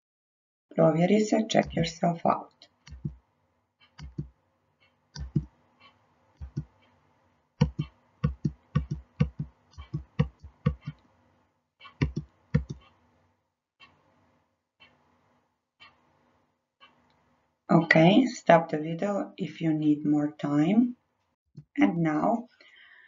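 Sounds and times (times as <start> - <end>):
computer mouse clicks: 2.9 - 3.2, 3.8 - 7.0, 7.6 - 11.0, 11.8 - 13.0.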